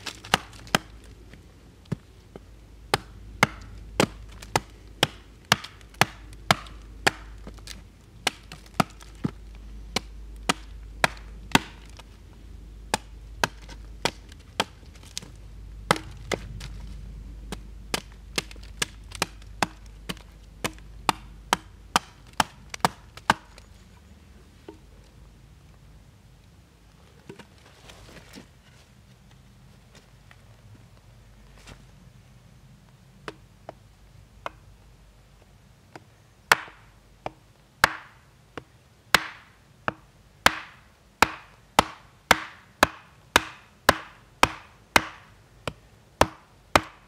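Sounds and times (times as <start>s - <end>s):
hatchet chopping wooden stake: 0.0s - 1.1s, 1.9s - 12.1s, 12.9s - 16.7s, 17.5s - 23.7s, 33.2s - 33.8s, 34.4s - 34.6s, 35.9s - 47.0s.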